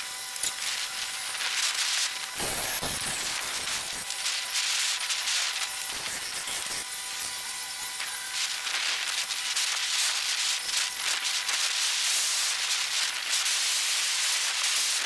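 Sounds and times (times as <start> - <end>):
steady hiss: 0.6 - 6.8, 8.1 - 15.0.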